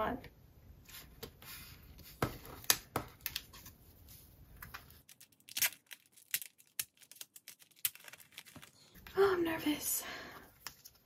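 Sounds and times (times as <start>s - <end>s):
card pack being opened: 4.6s - 9.0s.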